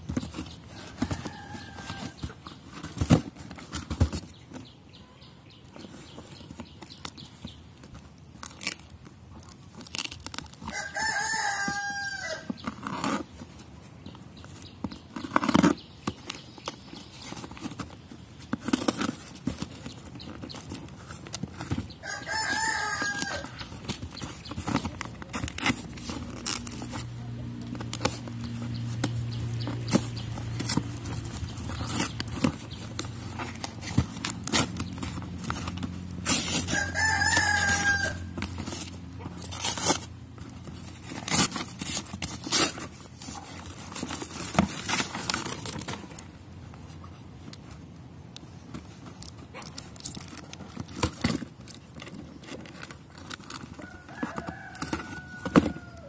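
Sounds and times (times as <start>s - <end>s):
paper parcel crinkling and rustling: 0.0s - 56.0s
rooster crowing: 0.7s - 2.2s, 10.6s - 12.6s, 22.0s - 23.6s, 36.7s - 38.4s, 53.8s - 56.0s
knife cutting packing tape: 8.0s - 13.4s, 14.4s - 46.3s.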